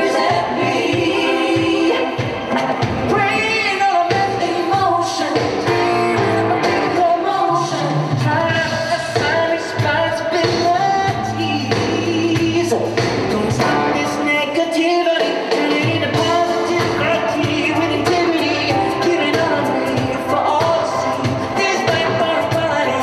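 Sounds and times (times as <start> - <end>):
live band playing: 0.0 - 23.0
man singing pop song: 0.0 - 23.0
bass line: 5.6 - 14.4, 15.8 - 23.0.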